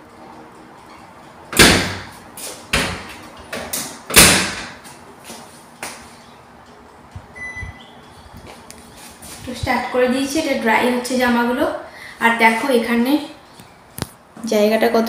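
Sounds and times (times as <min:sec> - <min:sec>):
dryer door slamming: 0:01.5 - 0:02.1, 0:04.1 - 0:04.8.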